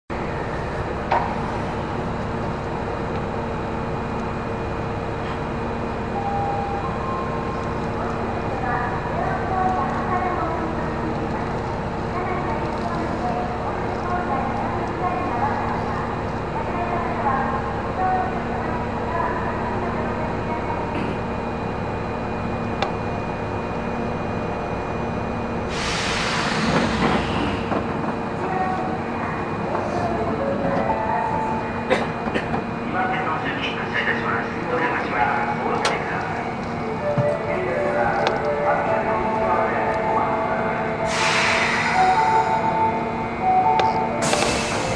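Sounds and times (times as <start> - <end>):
train interior rumble: 0.1 - 44.9
compressed air hiss: 25.7 - 26.7, 41.1 - 42.0.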